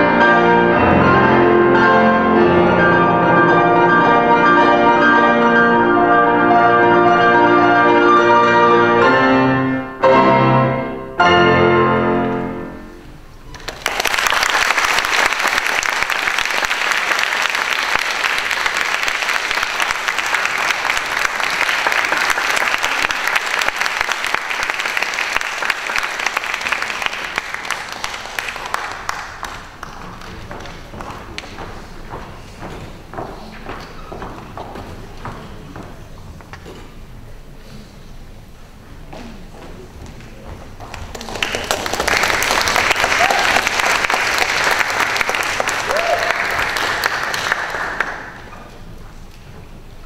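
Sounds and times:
grand pianos playing chords: 0:00.0 - 0:13.6
audience applauding: 0:13.5 - 0:32.1, 0:40.8 - 0:48.7.

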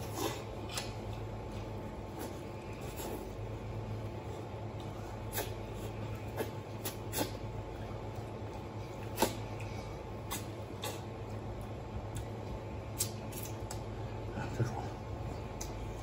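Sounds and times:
person eating with smacking sounds: 0:00.0 - 0:16.0
steady low hum: 0:00.0 - 0:16.0.

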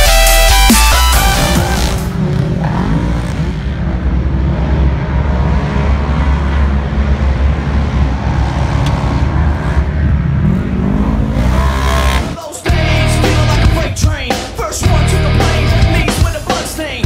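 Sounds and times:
off-road vehicle engines revving: 0:01.0 - 0:13.8.

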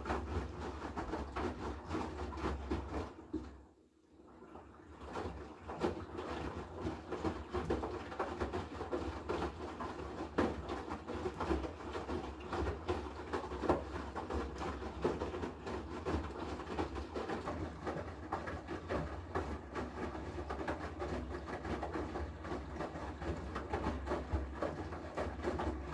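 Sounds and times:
washing machine low hum: 0:00.0 - 0:25.9
washing machine sloshing and thudding: 0:00.0 - 0:25.9.

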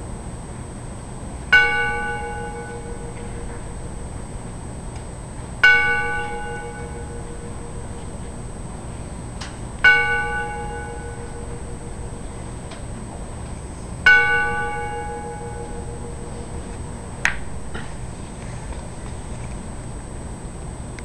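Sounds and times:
bell ringing: 0:01.6 - 0:04.5, 0:05.6 - 0:08.9, 0:09.8 - 0:12.7, 0:14.1 - 0:18.2.

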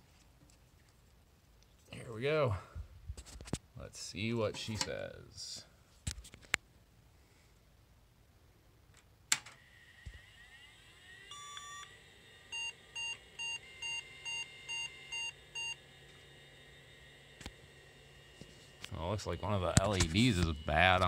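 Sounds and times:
computer fan whirring: 0:09.3 - 0:21.0
computer beeps: 0:11.3 - 0:11.9.

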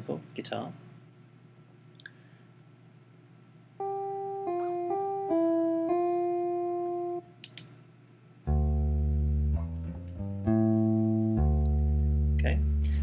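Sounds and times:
jazz guitar single notes: 0:03.8 - 0:07.2, 0:08.5 - 0:13.0.

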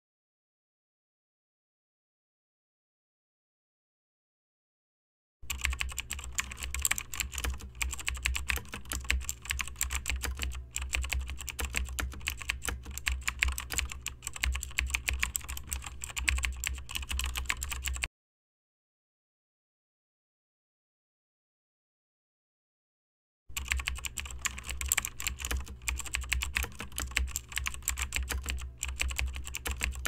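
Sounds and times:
computer keyboard typing: 0:05.4 - 0:18.1, 0:23.5 - 0:30.0.

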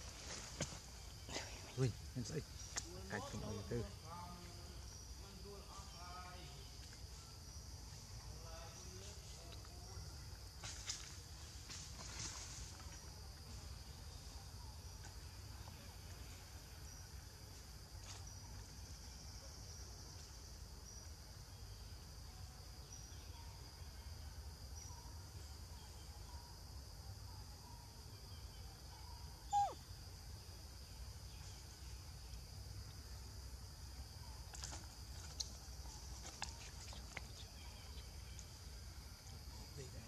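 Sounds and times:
high insect drone: 0:00.0 - 0:40.0
faint chirps: 0:12.0 - 0:40.0.

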